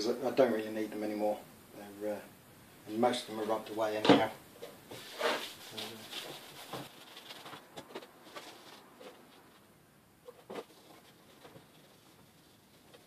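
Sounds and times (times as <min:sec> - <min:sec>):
cloth rubbing on metal panel: 0:04.9 - 0:09.6.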